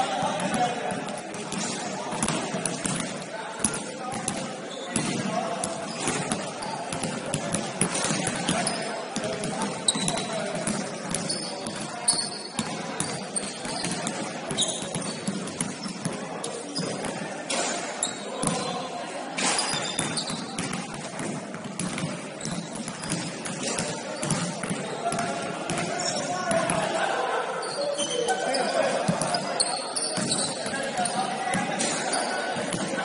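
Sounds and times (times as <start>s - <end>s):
sneakers squeaking: 0.0s - 27.0s, 27.6s - 33.0s
basketball bouncing on court: 0.1s - 16.2s, 19.7s - 26.8s, 30.1s - 32.0s.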